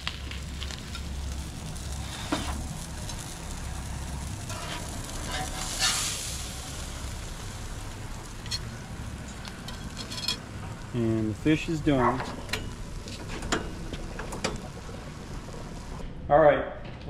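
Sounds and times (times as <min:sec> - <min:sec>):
fish fillet sizzling: 0:00.0 - 0:16.0
gas grill burners hissing: 0:00.0 - 0:16.1
metal spatula scraping grill grates: 0:02.0 - 0:02.6, 0:04.2 - 0:06.4, 0:09.6 - 0:10.4.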